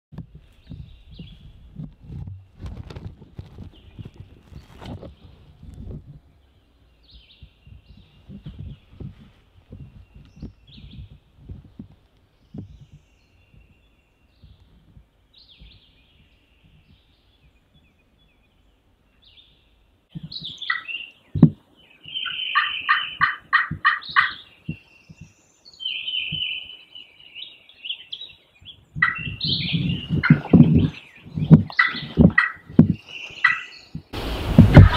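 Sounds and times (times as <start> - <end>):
low thumps and rustling: 0.1 - 17.1, 28.7 - 34.9
songbirds chirping: 0.2 - 34.9
turkey gobbling: 20.7 - 20.9, 22.2 - 24.4, 29.0 - 30.9, 31.7 - 32.7, 33.4 - 33.7
sharp thump: 34.5 - 34.9.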